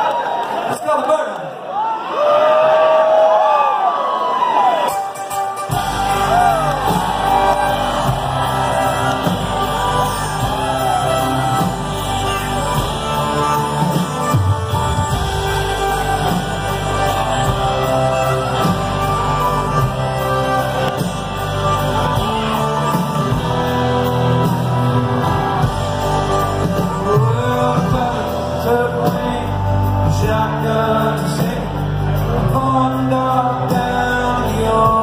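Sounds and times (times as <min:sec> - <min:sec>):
drums: 0:04.6 - 0:35.0
acoustic guitar: 0:04.8 - 0:35.0
fiddle: 0:05.0 - 0:29.4
electric bass: 0:05.6 - 0:35.0.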